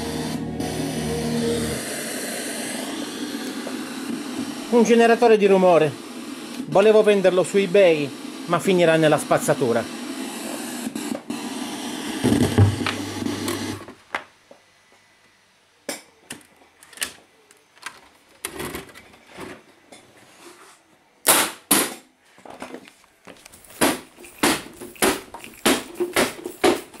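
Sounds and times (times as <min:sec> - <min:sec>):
footsteps: 0:22.3 - 0:27.0
handling clicks and knocks: 0:23.3 - 0:27.0.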